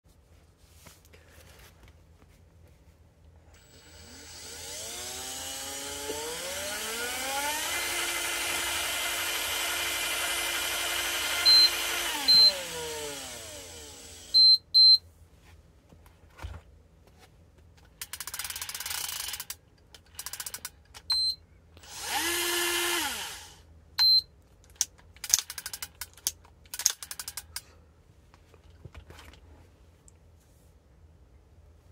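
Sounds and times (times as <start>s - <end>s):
spool whirring: 3.5s - 14.4s, 21.8s - 23.6s
fishing reel motor whine: 3.6s - 14.4s, 21.9s - 23.5s
short electronic beeps: 14.4s - 15.0s.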